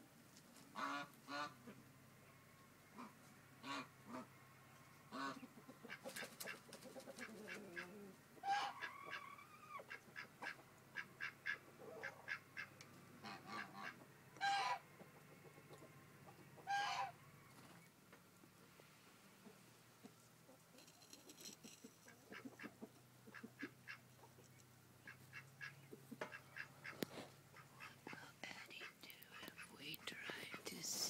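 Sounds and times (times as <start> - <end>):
geese honking: 7.5 - 9.3, 9.9 - 14.8, 16.6 - 17.2, 25.0 - 28.2.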